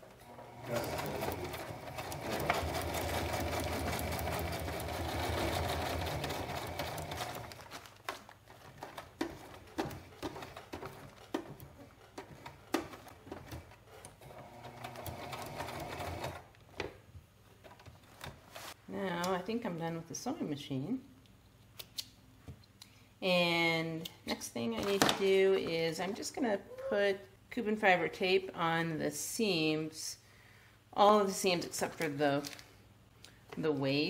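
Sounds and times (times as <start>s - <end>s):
sewing machine stitching: 0.2s - 7.7s, 8.6s - 16.4s.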